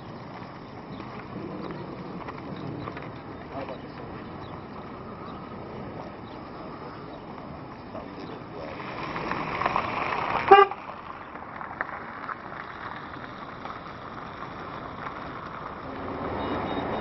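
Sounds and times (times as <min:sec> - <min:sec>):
outdoor background noise: 0:00.0 - 0:17.0
vehicle passing: 0:00.0 - 0:17.0
short horn toot: 0:10.5 - 0:10.8.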